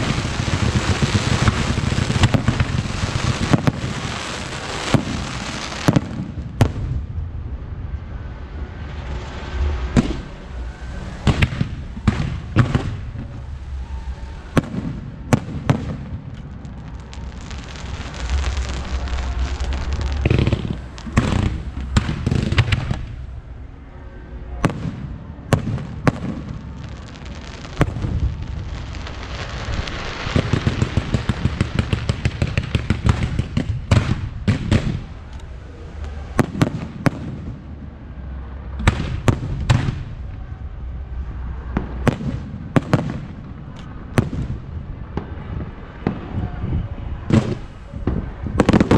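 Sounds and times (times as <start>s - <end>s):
fireworks crackling: 0.0s - 7.1s, 8.8s - 23.6s, 24.6s - 46.4s, 47.3s - 48.9s
low rumble: 6.3s - 32.0s.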